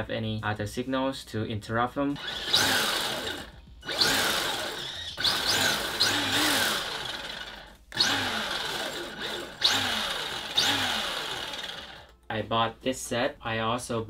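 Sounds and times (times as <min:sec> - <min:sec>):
electric rc car revving: 0:02.2 - 0:12.1.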